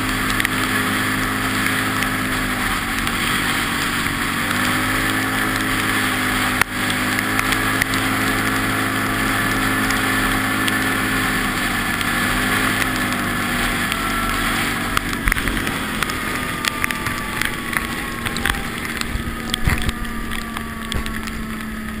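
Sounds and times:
quad bike engine running: 0.0 - 22.0
wind noise on microphone: 13.1 - 22.0.

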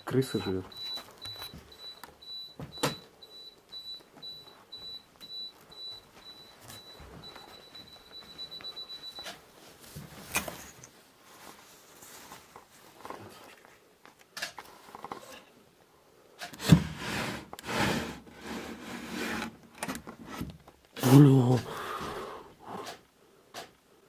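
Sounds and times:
wooden drawer dragged open: 16.6 - 19.6.

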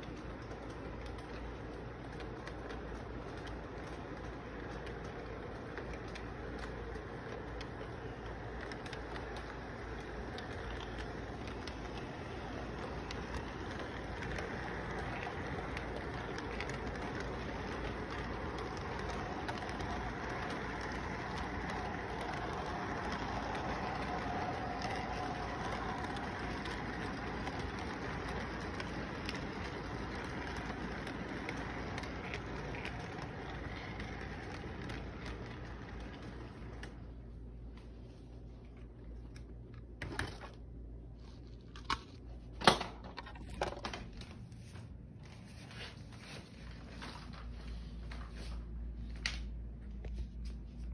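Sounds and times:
model train wheels rattling: 0.0 - 37.2
faint electric motor hum: 0.0 - 50.9.

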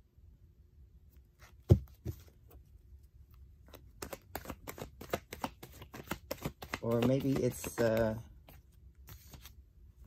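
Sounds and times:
cards flicking and snapping: 3.7 - 9.6.

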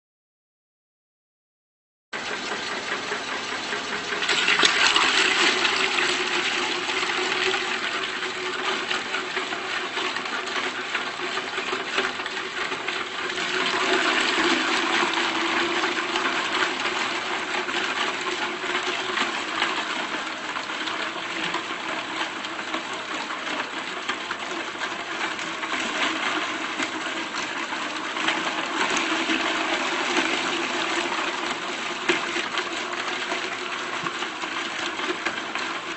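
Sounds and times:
meat grinder grinding bones: 2.2 - 35.9.

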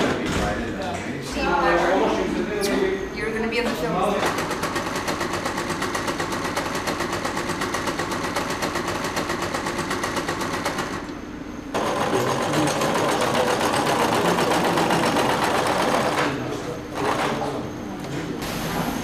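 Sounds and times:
electric sewing machine running: 4.2 - 11.1, 11.7 - 16.4.

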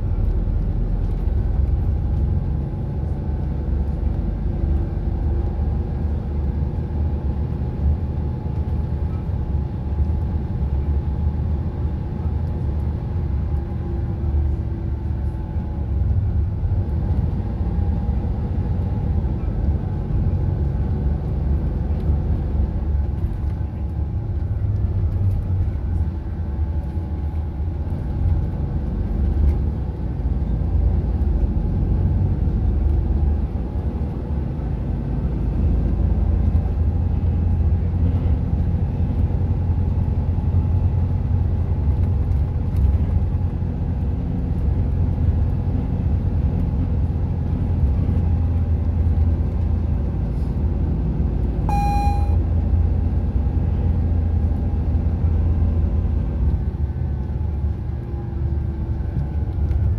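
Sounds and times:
bus engine and road rumble: 0.0 - 59.9
short electronic chime: 51.7 - 52.4.

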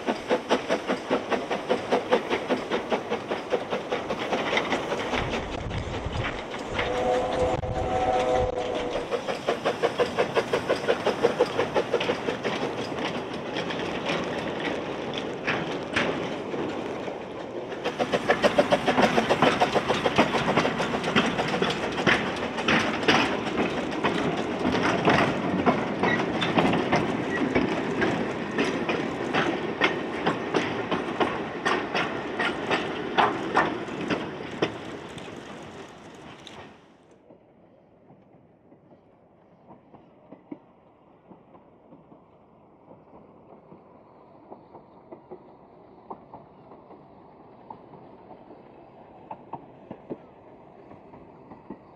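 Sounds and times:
wagon wheels clicking over rail joints: 0.0 - 7.5, 8.1 - 36.8
steam train exhaust beats: 0.0 - 16.2, 17.6 - 36.5.

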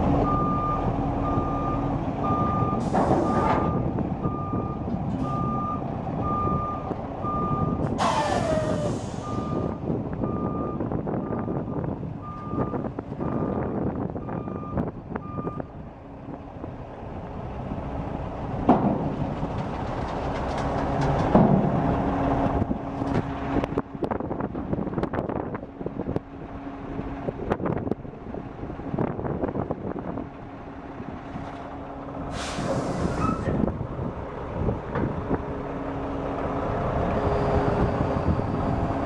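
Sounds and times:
diesel truck engine running: 0.0 - 39.0
reversing beeper: 0.2 - 11.5
metal knocks and clanks: 18.6 - 22.0
air hiss: 32.3 - 33.5.

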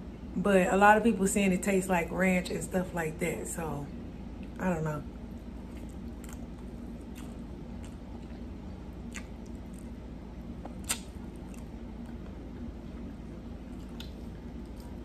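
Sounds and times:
low steady hum: 0.0 - 15.0
wet mouth clicks and smacks: 9.1 - 9.9, 10.6 - 11.7, 13.8 - 14.2.

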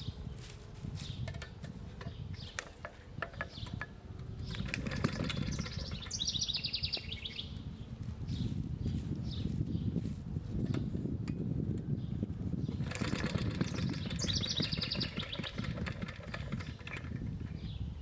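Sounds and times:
bird trilling: 2.2 - 8.5, 12.7 - 17.9
starter rope clicking: 2.5 - 6.2, 12.8 - 17.6
engine turning over: 4.4 - 6.5, 12.7 - 17.6.

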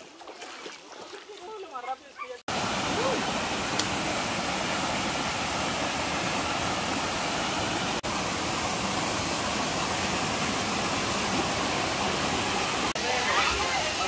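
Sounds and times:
waterfall pouring into pool: 2.5 - 14.0.

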